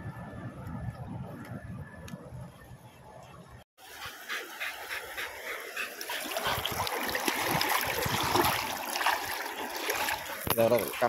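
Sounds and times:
river water splashing: 3.8 - 11.0.

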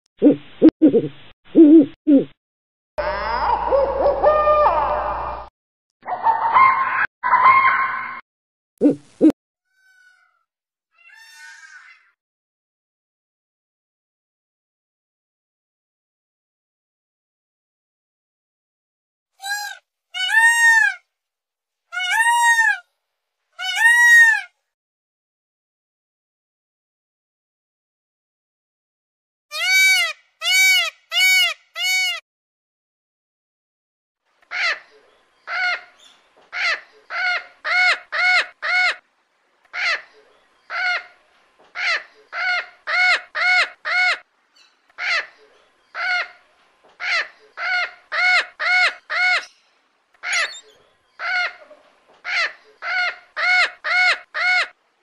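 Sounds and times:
peafowl calling: 29.5 - 32.2, 34.5 - 39.0, 47.0 - 49.6, 50.2 - 54.7.

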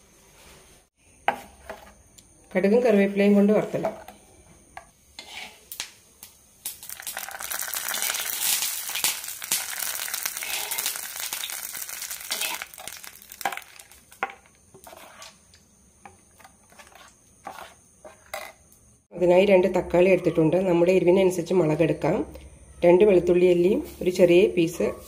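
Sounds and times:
hot oil sizzling: 4.9 - 15.9
spoon scraping a steel bowl: 5.2 - 5.7, 14.7 - 15.4, 16.6 - 18.6.

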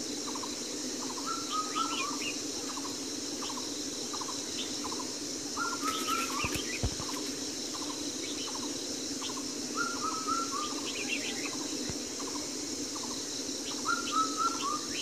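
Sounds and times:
background hiss: 0.0 - 15.0
birds chirping: 3.4 - 15.0.

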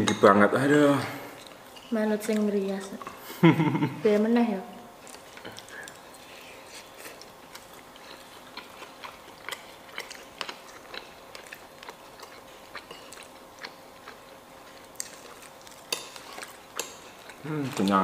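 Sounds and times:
person chewing: 5.0 - 18.0.

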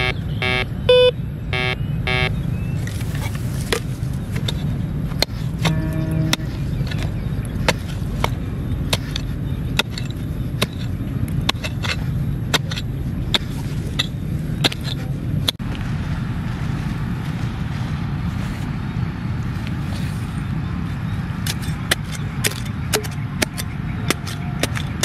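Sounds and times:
steady low rumble: 0.0 - 25.0
scraping loose soil by hand: 2.8 - 15.6
pick-mattock striking stony soil: 2.8 - 15.8, 21.4 - 25.0.

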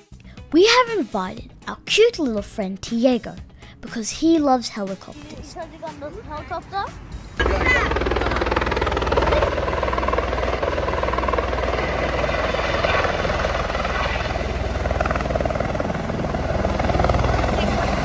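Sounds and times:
helicopter rotor chopping: 7.0 - 18.0
helicopter engine: 7.4 - 18.0.

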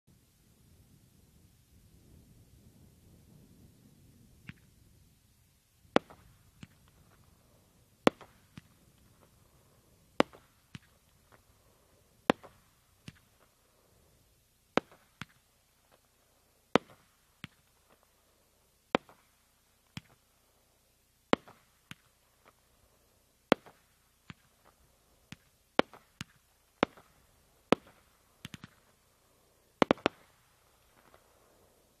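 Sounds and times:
small firework pops: 4.4 - 4.9, 5.8 - 13.6, 14.7 - 18.2, 18.9 - 20.3, 21.3 - 22.7, 23.5 - 29.0, 29.8 - 31.4
firework bangs: 5.8 - 18.1, 18.9 - 20.2, 21.3 - 22.7, 23.5 - 29.0, 29.7 - 31.6.

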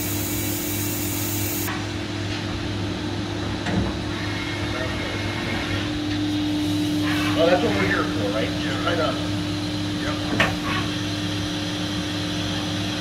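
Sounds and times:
high hiss: 0.0 - 1.7
machine shop equipment hum: 0.0 - 13.0.

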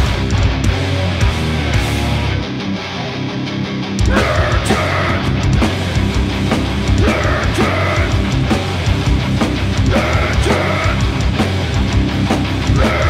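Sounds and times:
metal band playing live: 0.0 - 13.0
harsh shouted vocals: 4.0 - 6.0, 6.8 - 8.9, 9.7 - 11.4, 12.6 - 13.0.

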